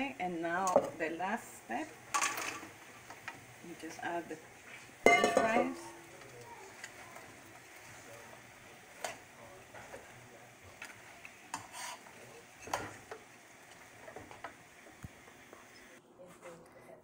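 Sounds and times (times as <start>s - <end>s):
faint sizzle: 0.0s - 17.0s
metal tongs scraping a frying pan: 10.8s - 13.1s.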